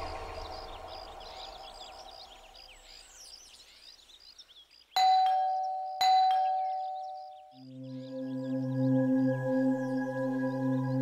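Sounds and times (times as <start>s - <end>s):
faint birdsong: 0.0s - 11.0s
ding-dong doorbell chime: 5.0s - 7.4s
soft background music: 7.5s - 11.0s.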